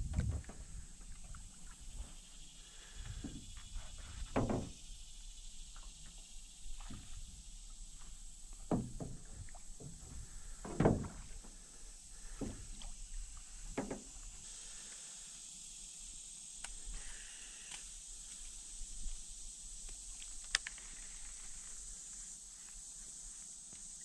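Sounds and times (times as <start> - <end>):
hollow knocks on metal boat: 4.3 - 4.8, 8.6 - 11.4, 13.7 - 14.1.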